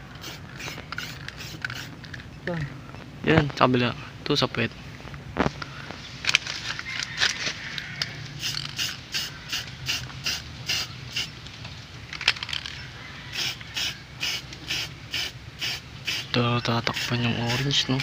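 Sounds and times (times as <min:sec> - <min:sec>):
spray paint can hissing: 0:00.0 - 0:02.1, 0:08.3 - 0:11.4, 0:13.3 - 0:18.0.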